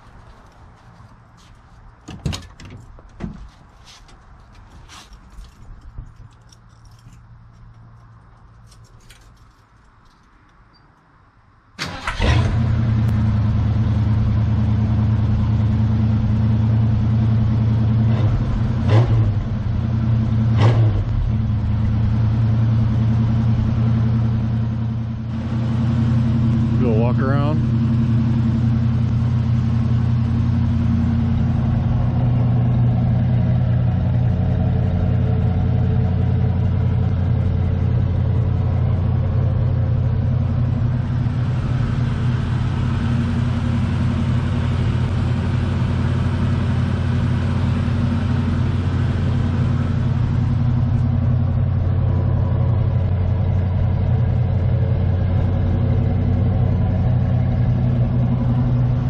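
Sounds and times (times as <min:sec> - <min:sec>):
car engine idling: 0:11.8 - 0:59.0.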